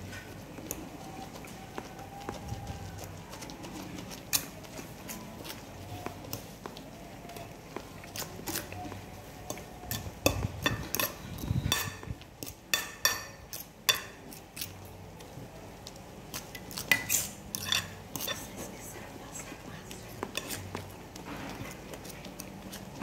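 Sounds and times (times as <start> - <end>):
fork scraping glass dish: 9.9 - 12.1, 16.8 - 18.5.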